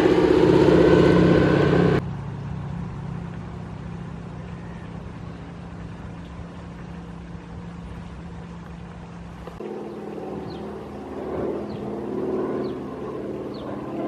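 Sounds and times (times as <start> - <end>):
propeller plane engine droning: 0.0 - 14.0.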